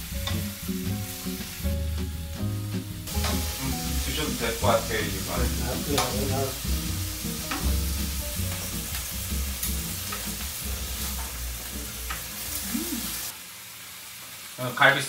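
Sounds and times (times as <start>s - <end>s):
soft background music: 0.0s - 13.3s
beef sizzling on grill pan: 0.0s - 15.0s.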